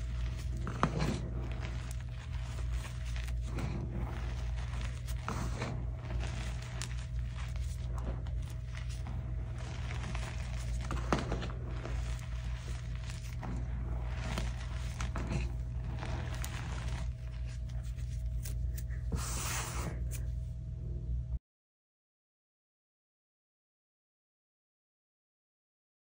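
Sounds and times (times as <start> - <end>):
crackle of falling powder: 0.0 - 20.3
chalk crunching by hand: 0.0 - 20.4
steady low hum: 0.0 - 21.4.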